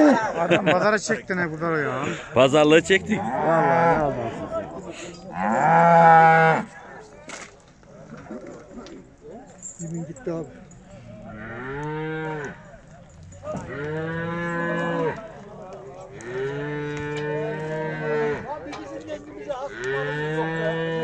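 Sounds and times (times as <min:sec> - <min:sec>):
cattle mooing: 0:01.8 - 0:04.6, 0:05.2 - 0:06.8, 0:11.0 - 0:15.4, 0:16.1 - 0:21.0.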